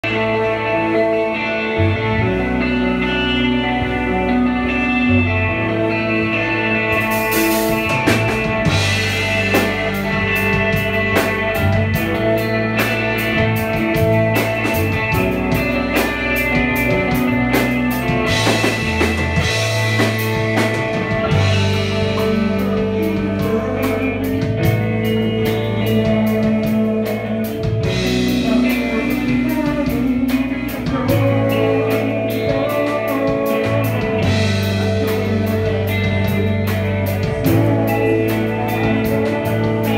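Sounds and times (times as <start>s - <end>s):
bass guitar: 0.0s - 39.9s
electric guitars: 0.0s - 39.9s
drum kit beat: 6.6s - 39.9s
woman singing: 22.1s - 39.9s.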